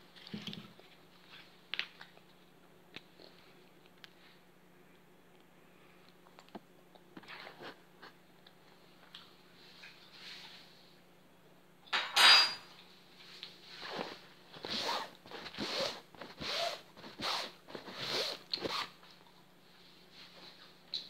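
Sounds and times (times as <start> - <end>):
kitchen items clattering: 11.9 - 12.7
scraping and rustling strokes: 13.1 - 20.8.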